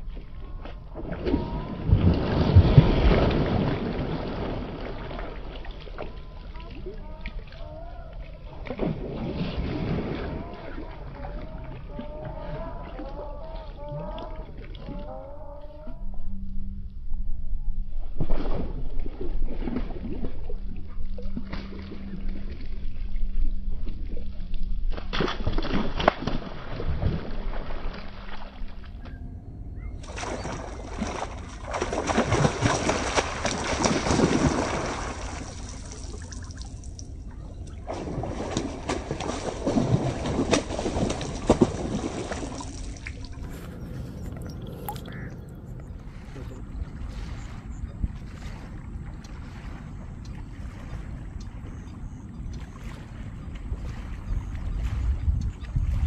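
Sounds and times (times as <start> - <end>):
wind rumbling on microphone: 0.0 - 56.0
fish splashing at water surface: 30.0 - 37.1, 37.8 - 49.9.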